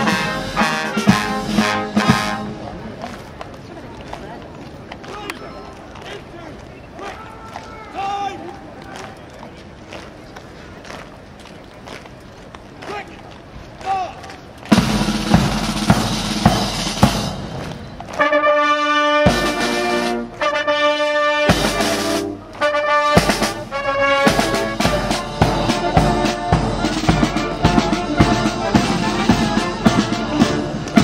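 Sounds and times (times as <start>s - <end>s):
marching drum beat: 0.0s - 2.8s, 14.6s - 20.4s, 21.4s - 31.0s
brass band playing: 0.0s - 3.2s, 14.7s - 31.0s.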